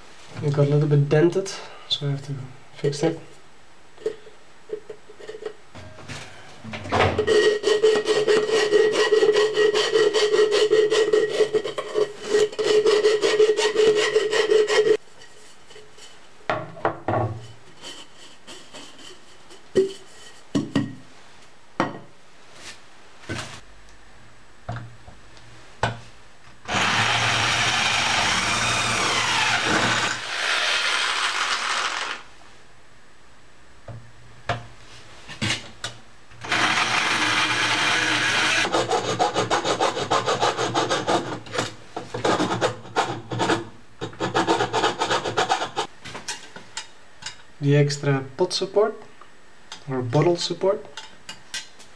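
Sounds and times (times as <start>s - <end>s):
rasping on metal container: 7.3s - 15.0s
loud scraping noise: 26.7s - 32.3s.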